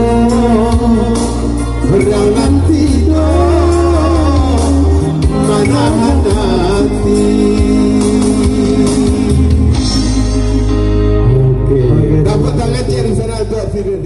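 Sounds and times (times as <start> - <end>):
man singing: 0.0 - 13.6
keyboard accompaniment: 0.0 - 14.0.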